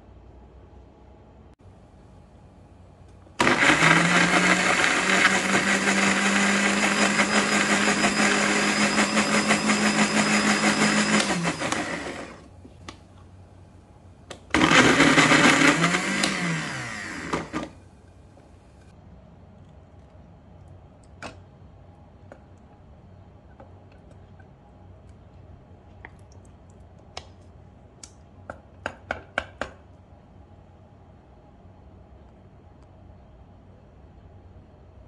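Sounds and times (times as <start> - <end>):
electric blender running: 3.4 - 12.5, 14.5 - 17.8.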